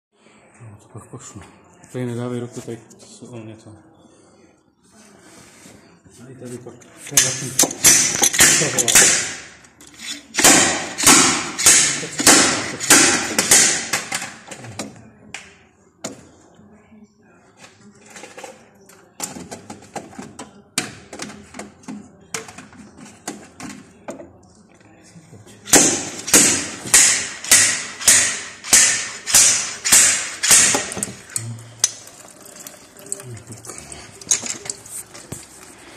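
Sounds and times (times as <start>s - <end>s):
hammer striking metal: 7.2s - 9.6s, 10.4s - 14.2s, 25.7s - 31.1s.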